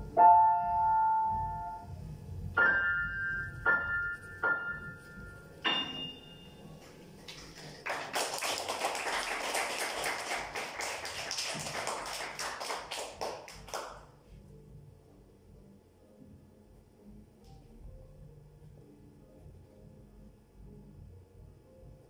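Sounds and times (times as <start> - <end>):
grand piano playing: 0.0 - 7.6
applause: 7.2 - 14.1.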